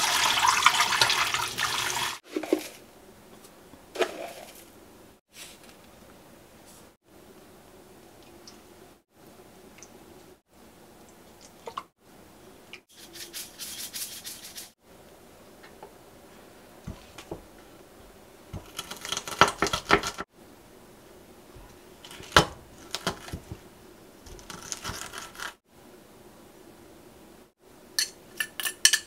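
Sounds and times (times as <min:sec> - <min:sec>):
spice shaker rattling: 0:12.9 - 0:14.7.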